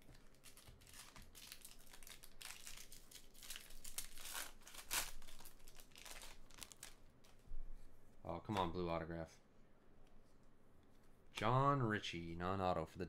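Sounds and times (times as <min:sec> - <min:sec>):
foil wrapper tearing and crinkling: 0:00.1 - 0:07.0.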